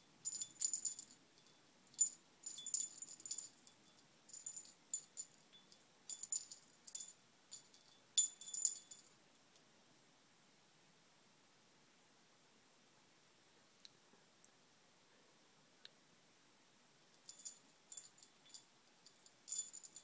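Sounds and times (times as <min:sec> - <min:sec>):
small metal bell jingling: 0:00.0 - 0:09.2, 0:17.2 - 0:20.0.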